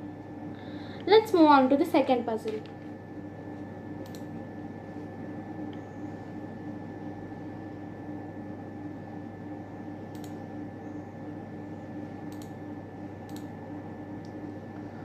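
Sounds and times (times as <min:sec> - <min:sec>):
low background hum: 0:00.0 - 0:15.0
faint computer mouse clicks: 0:04.0 - 0:04.3, 0:10.1 - 0:10.4, 0:12.3 - 0:12.6, 0:13.3 - 0:13.5.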